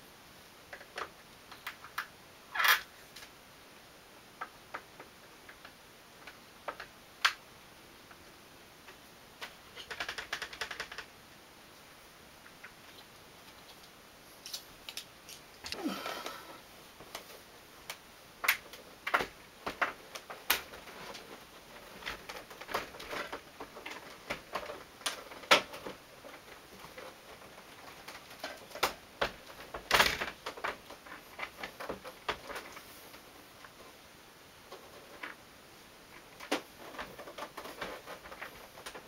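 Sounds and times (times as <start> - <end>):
plastic and metal parts knocking: 9.4 - 11.1.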